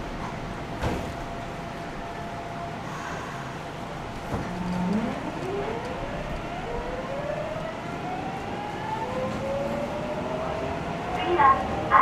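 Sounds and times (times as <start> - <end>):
wheels rumbling on rail: 0.0 - 12.0
train motor whine rising: 4.3 - 7.4.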